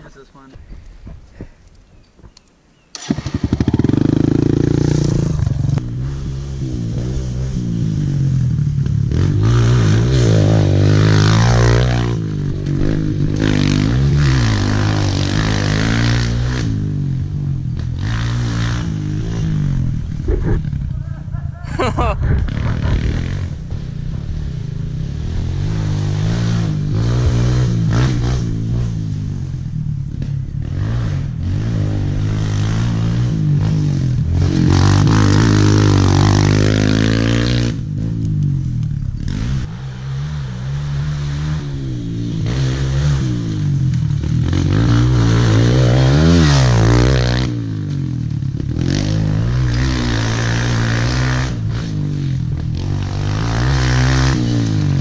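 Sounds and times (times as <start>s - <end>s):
dirt bike engine revving: 2.9s - 55.0s.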